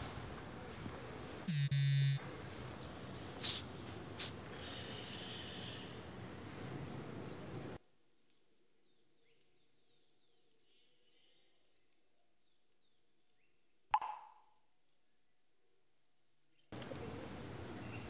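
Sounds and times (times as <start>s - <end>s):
outdoor background hiss: 0.0s - 9.0s, 15.9s - 18.0s.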